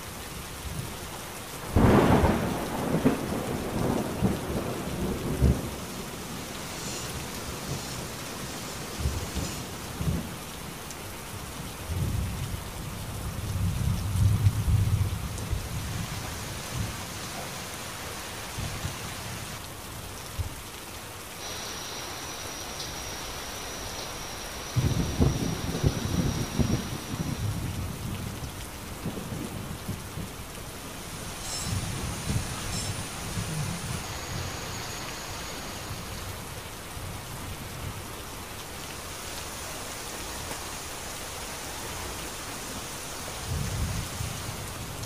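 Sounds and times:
steady rain falling: 0:00.0 - 0:45.0
thunder rumbling: 0:01.6 - 0:10.8, 0:13.2 - 0:19.6, 0:21.4 - 0:38.0.

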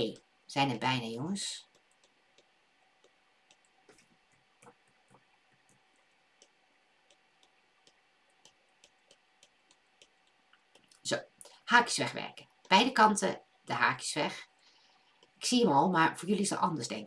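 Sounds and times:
stylus tapping tablet screen: 0:01.6 - 0:11.6, 0:12.3 - 0:13.8, 0:15.0 - 0:15.6.

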